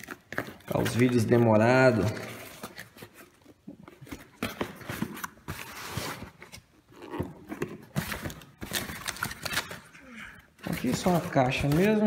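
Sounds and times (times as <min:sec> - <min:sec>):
cardboard boxes knocking and scraping: 0:10.6 - 0:12.0.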